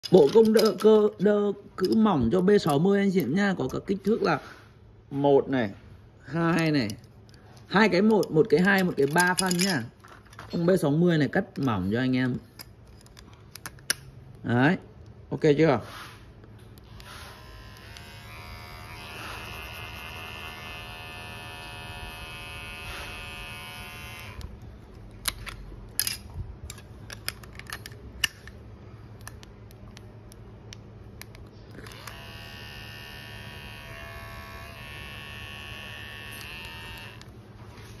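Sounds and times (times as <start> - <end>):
clicks and handling sounds: 0.0 - 4.2, 6.4 - 10.8, 11.4 - 15.2, 24.4 - 32.2
electric hair clipper buzzing: 16.8 - 24.6, 31.7 - 37.3.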